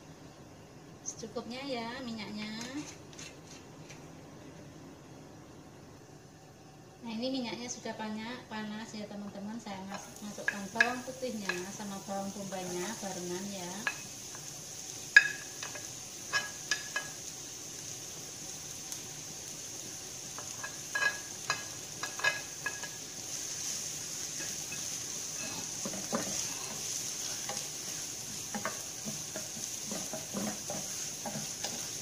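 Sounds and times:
garlic and onion sizzling in oil: 7.0 - 32.0
wooden spatula clacking: 9.9 - 11.7, 28.3 - 32.0.

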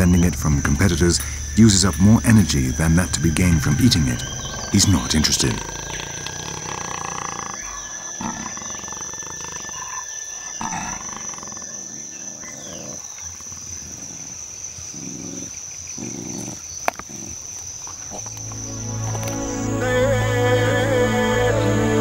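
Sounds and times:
high-pitched whine: 0.0 - 8.1
big cat growling: 0.0 - 18.4.

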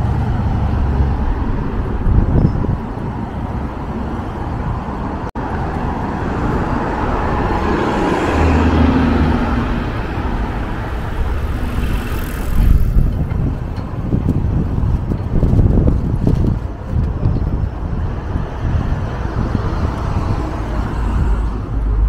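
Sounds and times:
street traffic: 0.0 - 22.0
wind rumble on microphone: 0.0 - 22.0
car passing close by: 5.4 - 13.2.

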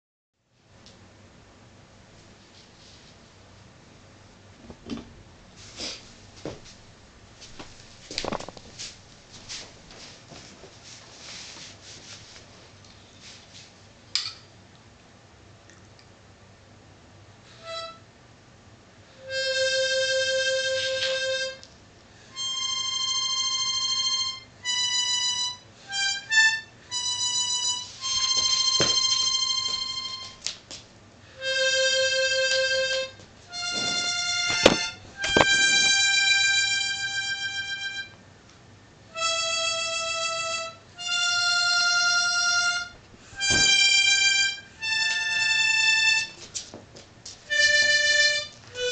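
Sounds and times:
harmonica playing: 17.5 - 18.1, 19.2 - 21.6, 22.2 - 30.4, 31.3 - 38.2, 39.1 - 46.4, 47.5 - 48.9.

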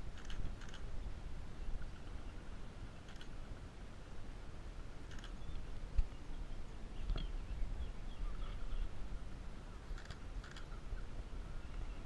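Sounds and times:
faint bird chirps: 5.1 - 9.0.

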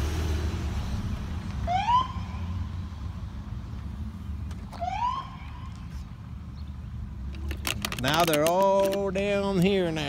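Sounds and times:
low rumble of engines: 0.0 - 10.0
police siren whoops: 1.7 - 2.4.

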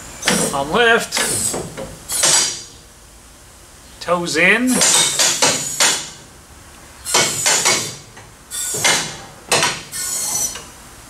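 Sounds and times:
car lift clanking and rattling: 0.0 - 2.8, 4.7 - 6.3, 7.0 - 10.8.

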